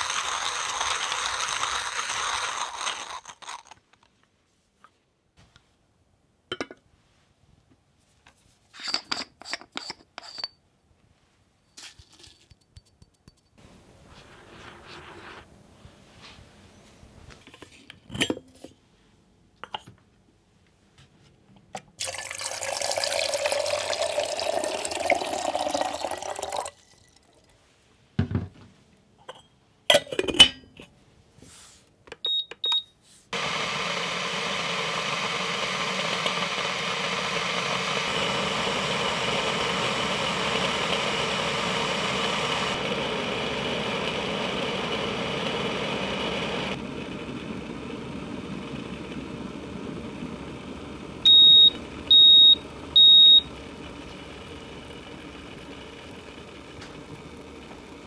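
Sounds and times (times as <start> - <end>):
electric kettle heating water: 0.0 - 3.2, 21.8 - 27.5, 33.4 - 58.0
kettle knocks and clunks: 28.2 - 28.6
short button beeps: 32.3 - 32.9.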